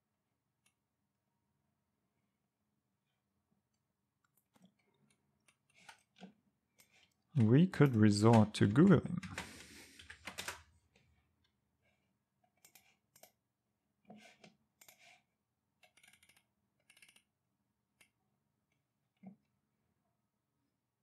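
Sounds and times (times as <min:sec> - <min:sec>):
computer mouse and keyboard clicks: 0:04.2 - 0:11.0, 0:12.5 - 0:13.4, 0:14.1 - 0:17.3.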